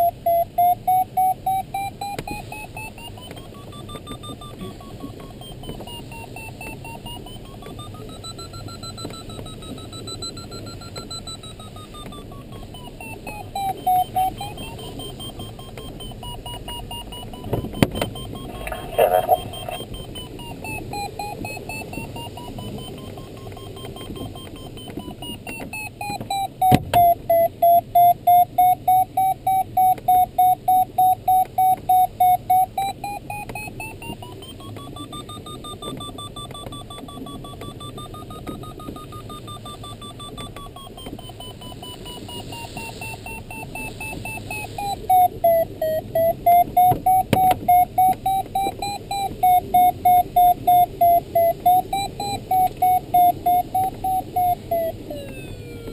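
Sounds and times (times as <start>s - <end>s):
pulsed electronic beeping: 0.0s - 55.9s
electronic tone wandering in pitch: 18.4s - 19.9s.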